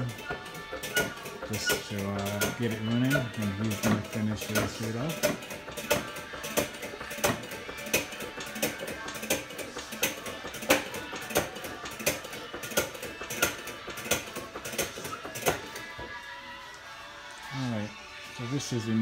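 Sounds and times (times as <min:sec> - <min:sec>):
hydraulic foot pump clacking: 0:00.0 - 0:16.1.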